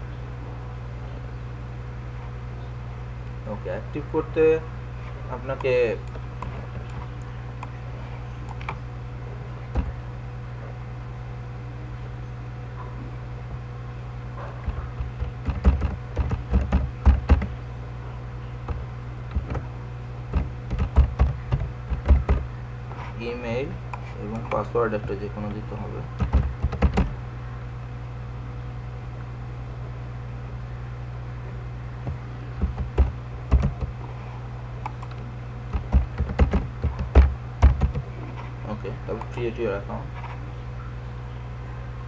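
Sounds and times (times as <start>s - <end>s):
steady low hum: 0.0s - 42.0s
computer keyboard keystrokes: 14.6s - 17.5s, 20.3s - 22.4s, 26.2s - 27.1s, 32.6s - 33.9s, 34.8s - 38.0s
typing on a keyboard: 14.6s - 17.5s.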